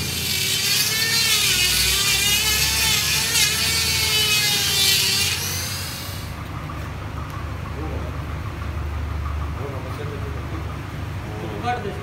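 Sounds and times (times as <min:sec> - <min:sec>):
die grinder grinding steel: 0:00.0 - 0:06.4.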